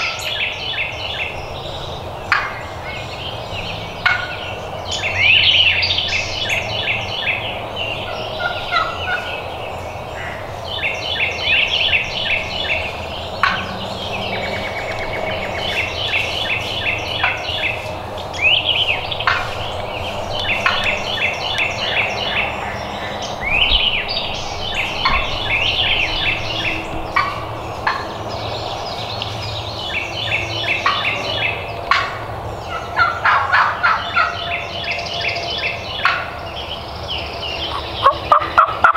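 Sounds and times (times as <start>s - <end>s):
turkey gobbling: 4.0s - 4.4s, 8.0s - 9.4s, 13.4s - 21.7s, 24.9s - 28.2s, 30.7s - 34.4s, 36.0s - 36.4s, 37.7s - 38.9s.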